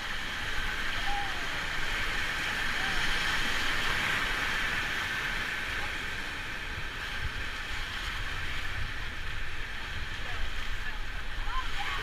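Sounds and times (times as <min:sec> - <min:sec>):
rushing river water: 0:00.0 - 0:12.0
wind buffeting microphone: 0:00.0 - 0:12.0.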